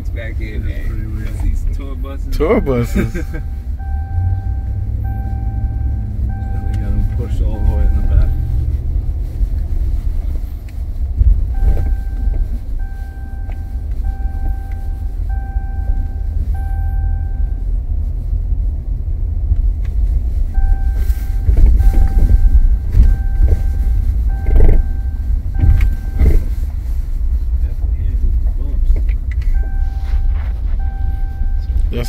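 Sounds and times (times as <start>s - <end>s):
engine and road rumble: 0.0s - 32.0s
dashboard warning chime beeping: 0.4s - 8.8s, 11.5s - 17.7s, 20.5s - 26.6s, 29.4s - 32.0s.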